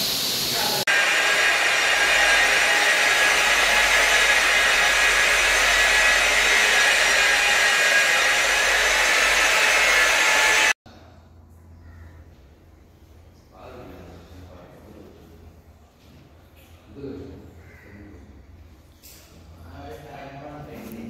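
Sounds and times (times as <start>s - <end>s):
floor polishing machine whirring: 0.0s - 10.8s.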